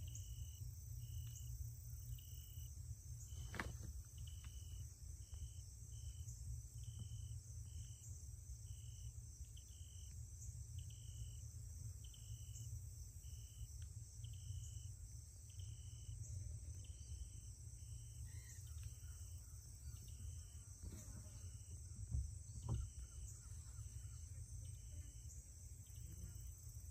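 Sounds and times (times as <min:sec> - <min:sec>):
insect chirping: 0:00.0 - 0:26.9.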